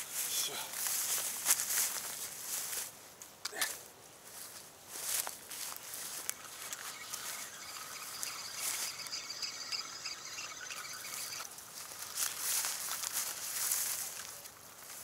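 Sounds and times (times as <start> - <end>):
rustles on dry grass: 0.0 - 3.3, 4.1 - 15.0
fishing reel cranking whir: 6.0 - 11.5.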